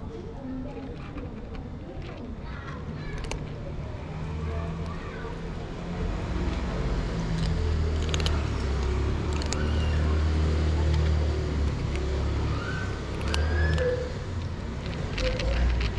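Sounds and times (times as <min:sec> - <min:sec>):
low traffic rumble: 0:00.0 - 0:15.9
cat crunching dry kibble: 0:03.1 - 0:03.7, 0:04.7 - 0:15.9.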